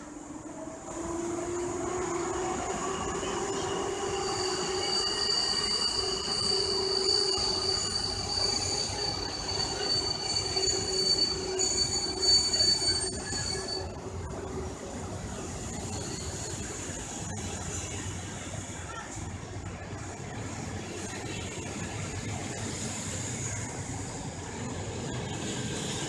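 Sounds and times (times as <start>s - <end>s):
train wheels rumbling: 0.1s - 26.0s
train wheels squealing: 1.0s - 18.1s, 22.4s - 26.0s.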